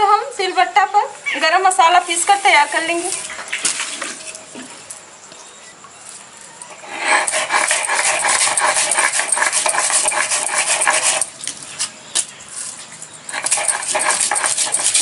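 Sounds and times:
stone grinding spices: 0:06.7 - 0:11.4, 0:13.3 - 0:15.0.

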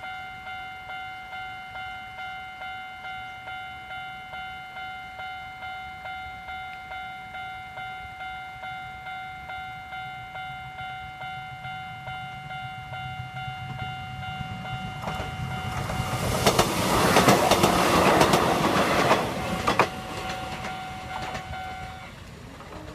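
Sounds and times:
level crossing alarm ringing: 0:00.0 - 0:22.2
train wheels clattering over rail joints: 0:14.4 - 0:22.9.

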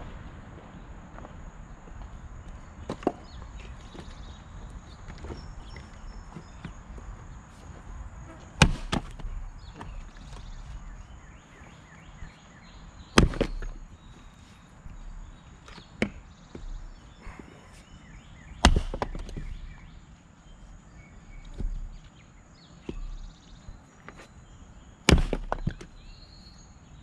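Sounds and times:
axe splitting wood: 0:08.6 - 0:10.0, 0:13.2 - 0:13.8, 0:18.6 - 0:19.6, 0:25.1 - 0:26.0.

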